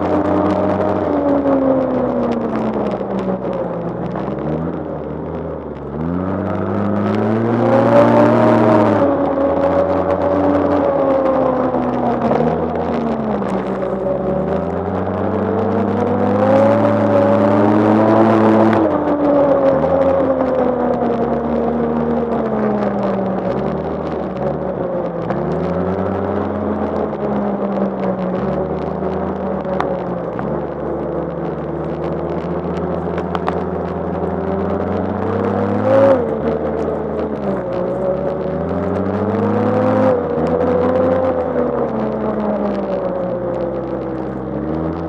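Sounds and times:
snowmobile engine running hard: 6.7s - 20.8s.

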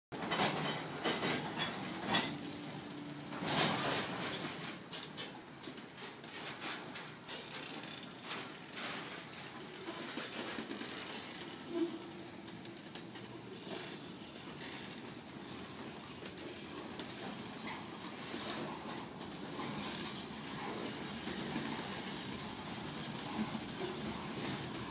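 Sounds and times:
train wheels rumbling on rails: 0.1s - 24.9s
metallic clanks and rattles: 0.2s - 6.0s.

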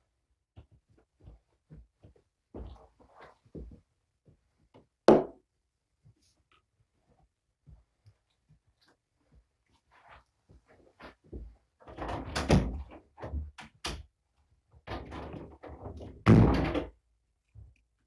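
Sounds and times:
knocks thuds and rattles: 11.9s - 13.6s, 14.9s - 17.0s.

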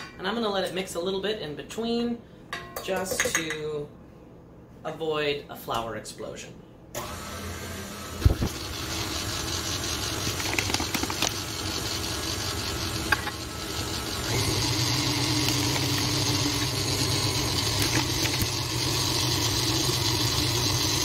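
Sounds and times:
stand mixer running: 7.0s - 21.0s.

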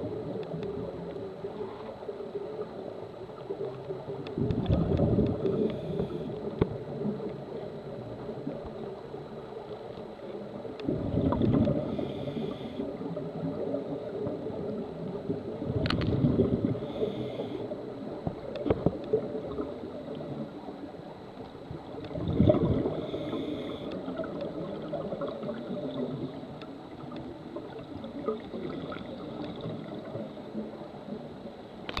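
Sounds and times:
gurgling exhalation bubbles: 4.4s - 6.2s, 10.8s - 12.0s, 15.6s - 16.9s, 22.0s - 23.4s
regulator inhalation hiss: 11.9s - 12.8s, 16.8s - 17.7s, 23.0s - 24.0s.

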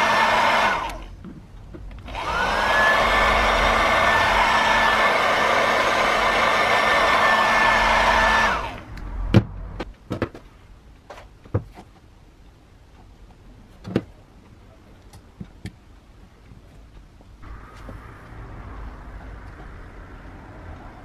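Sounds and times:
hot air gun blowing: 2.1s - 9.0s.

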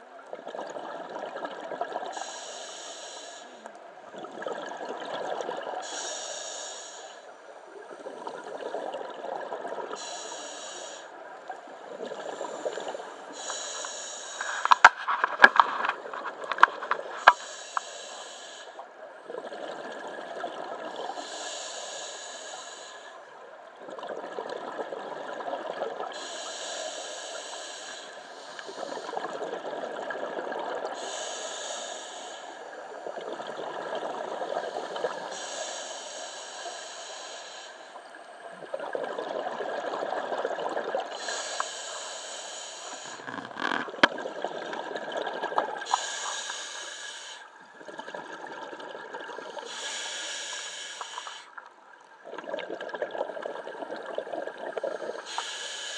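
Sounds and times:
regulator inhale hiss: 2.1s - 3.8s, 5.8s - 7.5s, 9.9s - 11.2s, 12.2s - 15.6s, 16.3s - 18.9s, 21.1s - 23.3s, 26.1s - 29.4s, 30.9s - 33.0s, 34.4s - 38.3s, 41.0s - 43.8s, 45.8s - 47.6s, 49.5s - 51.7s, 54.9s - 55.9s
exhaled bubbles rushing: 4.1s - 5.8s, 19.2s - 21.2s, 23.8s - 26.1s, 38.6s - 41.1s, 43.2s - 45.9s, 47.6s - 49.6s, 52.2s - 55.2s.

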